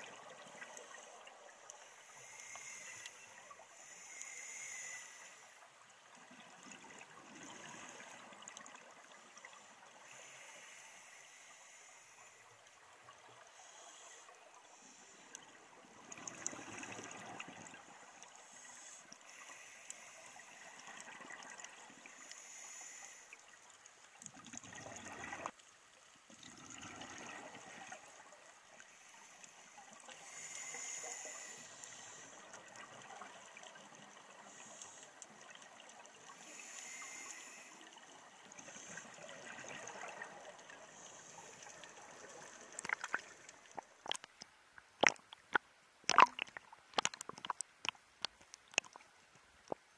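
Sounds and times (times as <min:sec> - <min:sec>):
steady regulator hiss: 0:00.1 - 0:06.2, 0:09.0 - 0:16.1, 0:17.7 - 0:21.0, 0:22.0 - 0:23.6, 0:28.7 - 0:33.0, 0:34.3 - 0:43.8
exhaled bubbles rushing: 0:45.0 - 0:45.3, 0:46.1 - 0:47.6.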